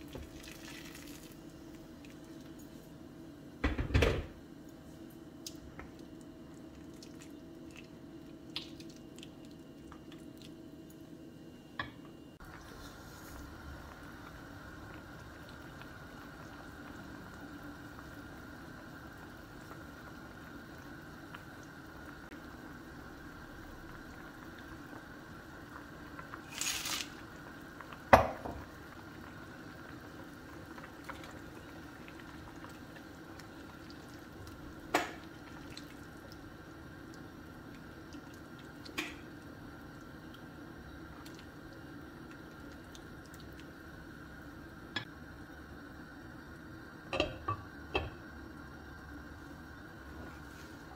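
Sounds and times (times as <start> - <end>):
stew bubbling in a pot: 0.0 - 4.7, 5.3 - 50.9.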